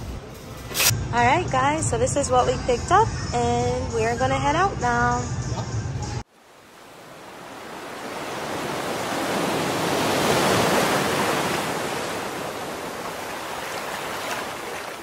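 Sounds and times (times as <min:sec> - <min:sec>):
ocean wave washing in and out: 0:06.3 - 0:15.0.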